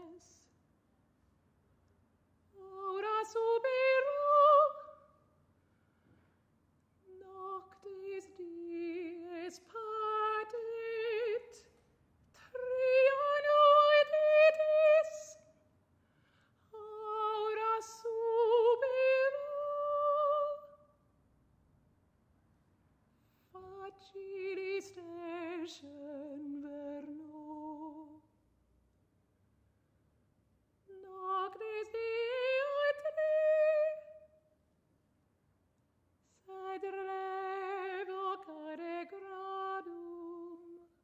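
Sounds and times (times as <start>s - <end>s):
woman singing solo with vibrato: 30.9s - 34.2s.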